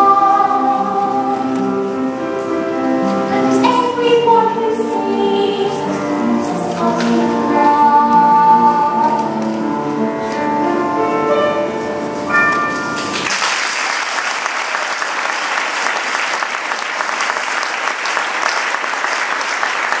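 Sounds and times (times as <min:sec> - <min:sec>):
instrumental music: 0:00.0 - 0:13.3
audience applauding: 0:13.0 - 0:20.0.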